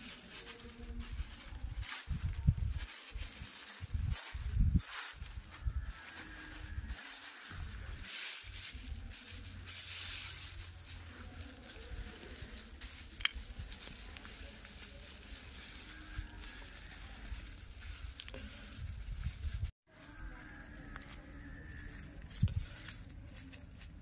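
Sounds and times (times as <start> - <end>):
plastic sheet crinkling: 0.0 - 22.2
wind rumble on microphone: 0.9 - 8.0, 16.1 - 19.7, 22.2 - 22.8.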